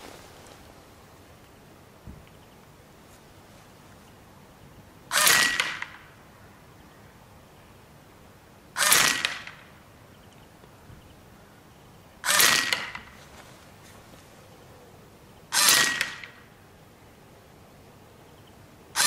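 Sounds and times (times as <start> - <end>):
air rifle shots: 5.1 - 6.0, 8.8 - 9.7, 12.2 - 13.2, 15.6 - 16.4.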